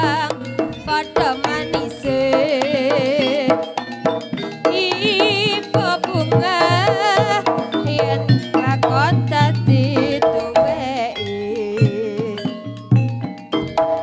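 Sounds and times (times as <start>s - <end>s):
rapid hand-drum strokes: 0.0s - 11.1s
gong and metallophone tones: 0.0s - 14.0s
wavering melodic line: 0.0s - 14.0s.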